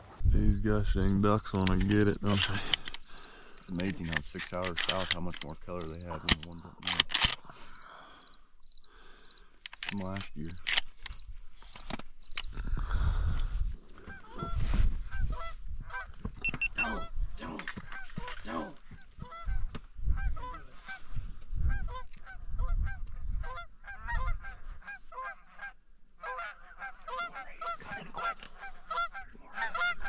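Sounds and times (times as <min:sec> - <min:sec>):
goose honking and clucking: 0:14.0 - 0:17.2, 0:17.9 - 0:30.0.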